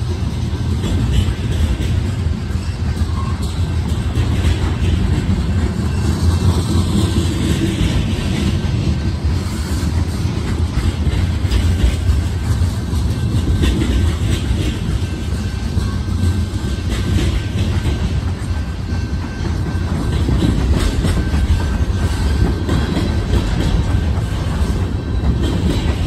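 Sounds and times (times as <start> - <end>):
freight train rumbling past: 0.0 - 26.0
wheels clacking over rail joints: 0.0 - 26.0.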